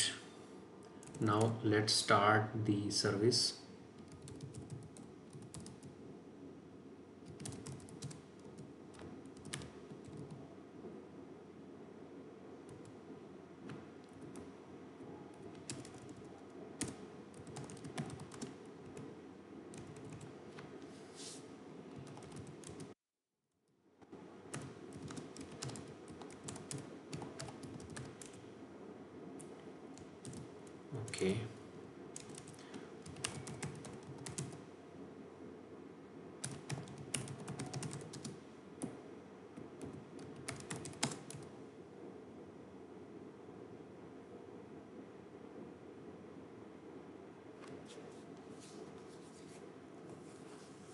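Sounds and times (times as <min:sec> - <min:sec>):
low hiss: 0:00.0 - 0:23.0, 0:24.0 - 0:50.9
computer keyboard typing: 0:00.8 - 0:01.6, 0:04.0 - 0:05.9, 0:07.2 - 0:10.4, 0:15.3 - 0:19.1, 0:19.7 - 0:20.3, 0:22.0 - 0:23.0, 0:24.5 - 0:28.4, 0:29.4 - 0:31.2, 0:32.2 - 0:34.6, 0:36.4 - 0:39.0, 0:39.8 - 0:41.5.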